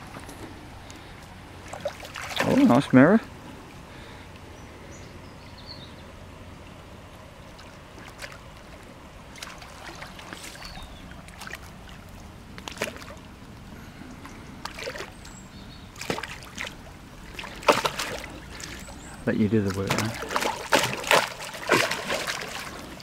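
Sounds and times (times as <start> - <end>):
fish splashing at water surface: 1.6 - 2.8, 7.5 - 13.3, 14.6 - 15.3, 15.9 - 23.0.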